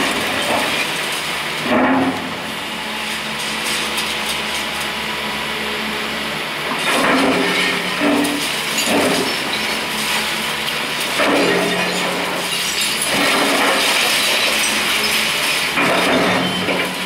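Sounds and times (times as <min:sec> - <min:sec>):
excavator diesel engine running: 0:00.0 - 0:17.0
concrete breaking and falling: 0:06.8 - 0:17.0.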